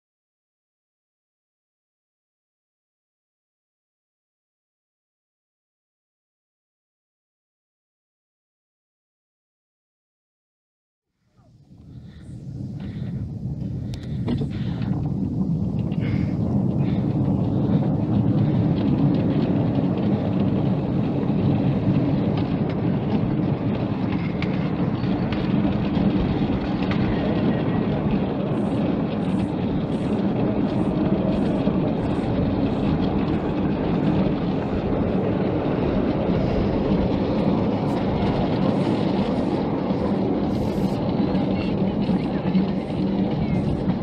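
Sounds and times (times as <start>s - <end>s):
miniature train rumbling on track: 11.7s - 44.0s.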